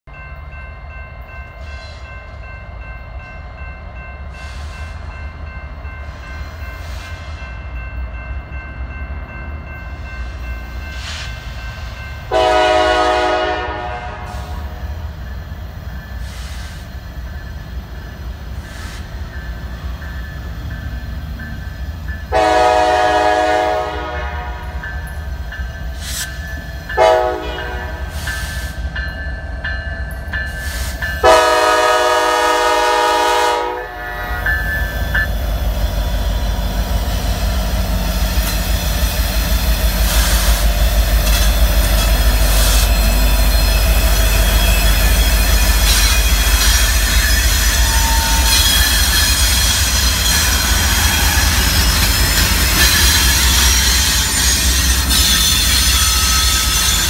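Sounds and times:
crossing bell ringing: 0.1 - 57.0
train rumble: 0.1 - 57.0
locomotive air horn blasts: 12.3 - 14.8, 22.3 - 24.8, 27.0 - 28.2, 31.2 - 34.5.

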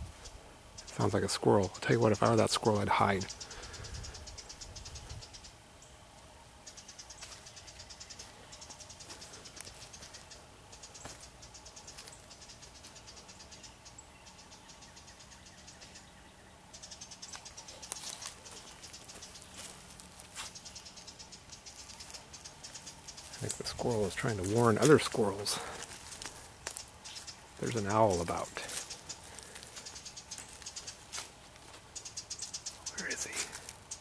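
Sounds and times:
wren chattering alarm: 0.0 - 34.0
footsteps in dry leaves: 8.2 - 13.0, 17.3 - 33.9.

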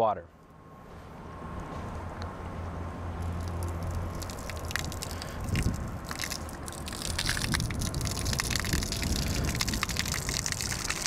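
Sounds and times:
pump motor hum: 3.2 - 11.0
water gushing and splattering: 3.2 - 11.0.

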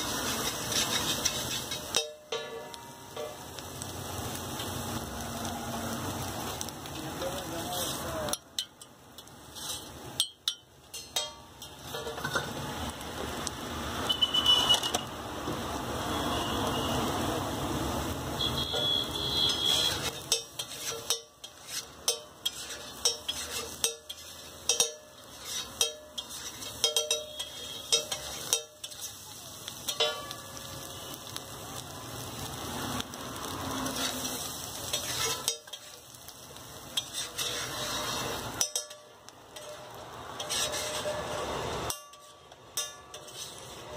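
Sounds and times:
metal spatula scraping: 0.0 - 3.4, 7.7 - 12.6, 18.8 - 30.9, 33.4 - 43.9
egg sizzling on griddle: 0.0 - 43.9
spatula tapping griddle: 0.2 - 3.4, 10.2 - 12.5, 19.5 - 29.1, 29.8 - 30.6, 34.8 - 41.2, 41.9 - 43.6.

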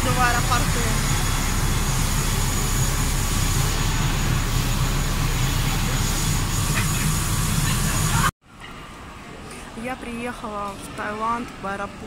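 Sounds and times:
low engine drone: 0.0 - 8.3
thin high whine: 0.0 - 8.3.

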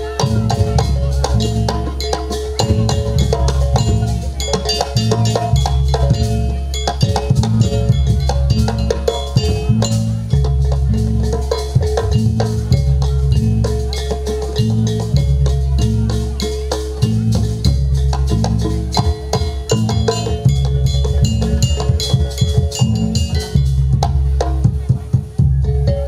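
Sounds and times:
low bass: 0.0 - 26.0
rapid drums and percussion: 0.0 - 26.0.

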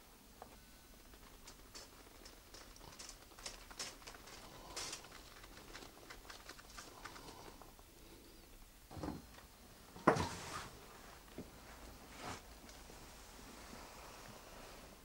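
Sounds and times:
faint light clicks and crackles: 0.4 - 8.5.

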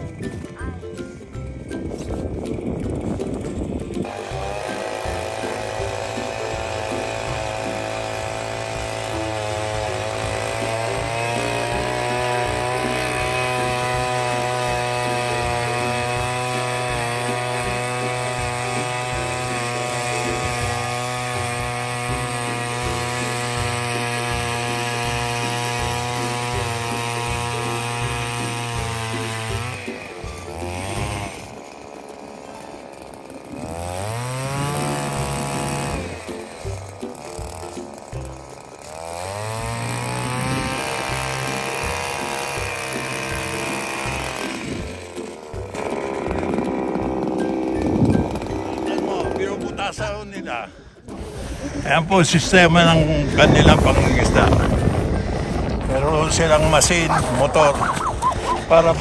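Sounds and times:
ice auger engine running: 1.5 - 59.0.

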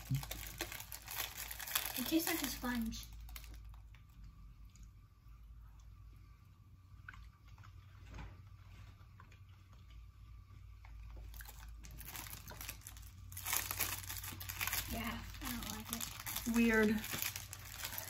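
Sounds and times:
plastic snack wrapper crinkling: 0.0 - 4.2, 11.2 - 18.0.

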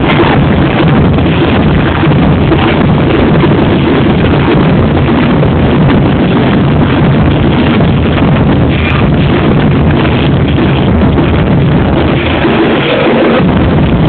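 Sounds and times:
dense crowd noise: 12.0 - 13.9.

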